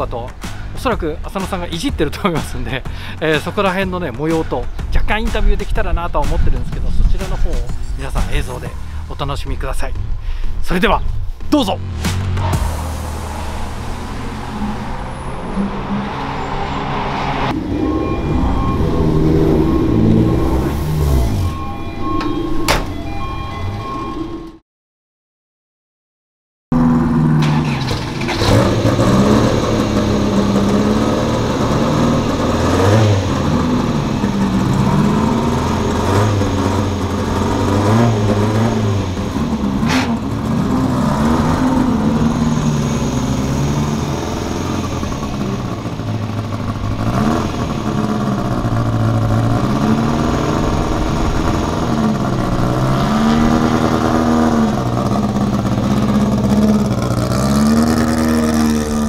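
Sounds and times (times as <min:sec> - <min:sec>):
car engine revving: 0:11.8 - 0:23.4, 0:26.7 - 0:59.0.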